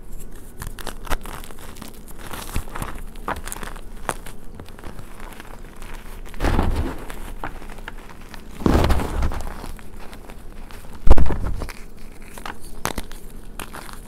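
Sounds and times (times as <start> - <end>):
hands crushing chalk: 0.2 - 14.0.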